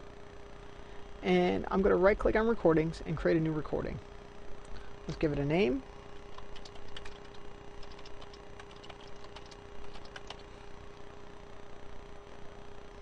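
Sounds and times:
faint hum: 0.0s - 13.0s
keyboard keys clicking: 6.3s - 10.5s.

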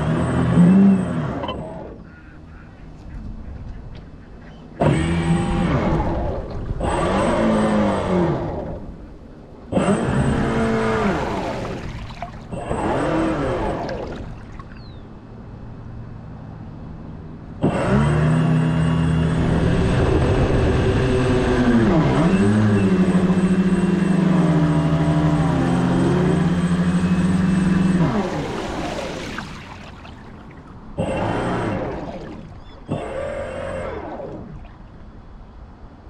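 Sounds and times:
model boat motor whine: 0.0s - 2.0s, 4.8s - 15.0s, 17.6s - 35.5s
water noise: 4.8s - 15.8s, 19.4s - 35.7s.

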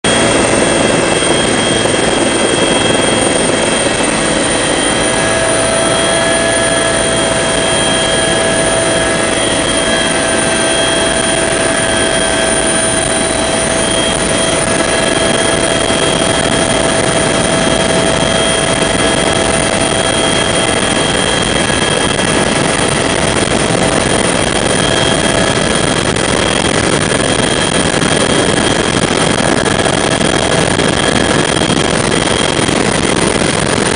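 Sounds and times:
helicopter engines and rotor: 0.0s - 33.9s
high whining tones: 0.1s - 33.9s.

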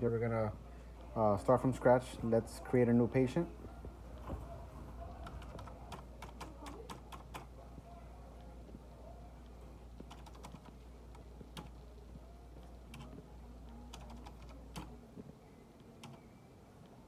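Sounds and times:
low steady hum: 0.0s - 17.0s
keyboard typing: 5.1s - 7.5s, 10.0s - 11.8s, 12.6s - 13.2s, 13.8s - 15.0s, 15.8s - 16.3s.

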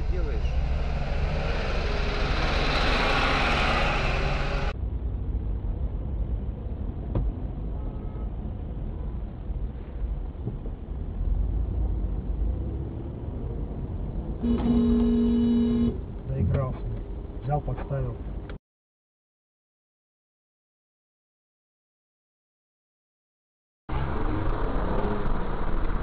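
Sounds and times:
engine and road rumble: 0.0s - 18.6s, 23.9s - 26.0s
car horn: 7.8s - 8.3s, 14.4s - 16.0s.

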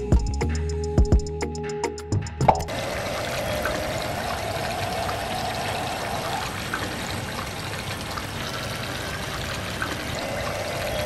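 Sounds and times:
water pouring from hose: 2.7s - 11.0s.

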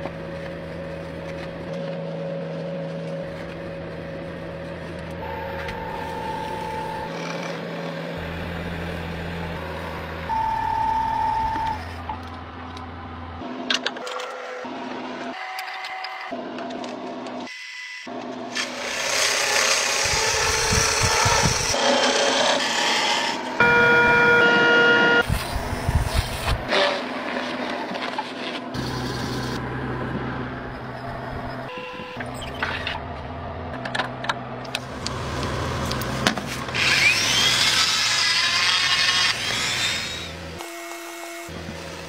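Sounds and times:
rotary tool whine: 0.2s - 12.9s, 17.4s - 26.9s, 34.8s - 42.0s
buffing wheel motor hum: 2.9s - 10.8s, 34.6s - 42.0s.

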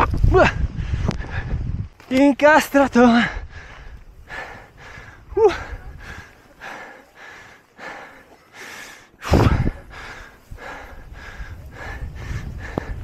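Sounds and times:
person breathing hard: 3.2s - 13.0s
low rumble through snow: 9.2s - 13.0s.

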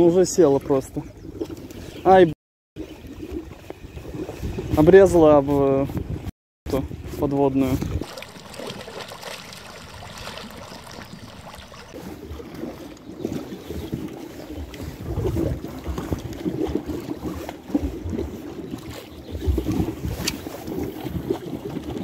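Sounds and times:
wind rumbling on microphone: 2.8s - 22.0s
small waves lapping: 7.1s - 22.0s.

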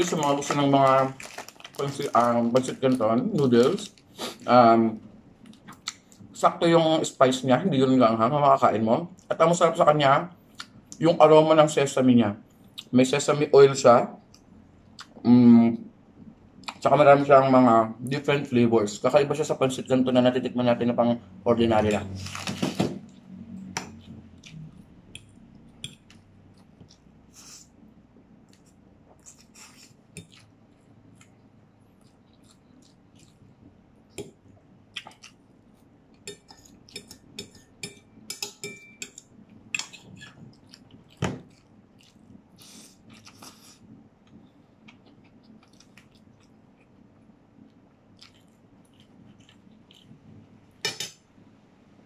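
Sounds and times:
soft chewing: 23.0s - 37.8s, 39.0s - 50.8s
fork clinking on ceramic plate: 36.3s - 39.2s.

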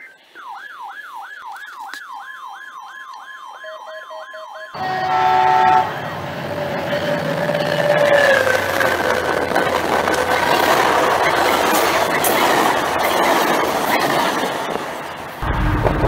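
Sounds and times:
electronic siren wailing: 0.0s - 9.2s
train horn chord: 4.8s - 6.2s
diesel train rumbling past: 4.8s - 16.0s.

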